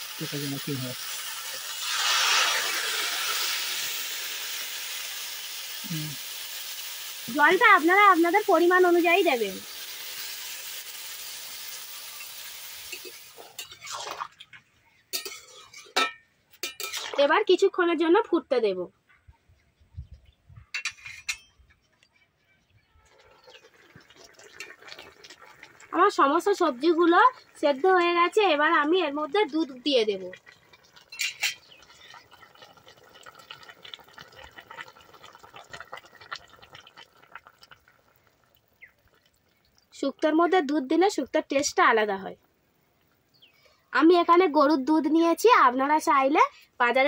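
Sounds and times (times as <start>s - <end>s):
faint hiss: 0.0s - 13.8s
water sizzling in hot pan: 0.0s - 14.4s, 23.3s - 41.9s
utensil clinking against metal pan: 15.2s - 17.1s.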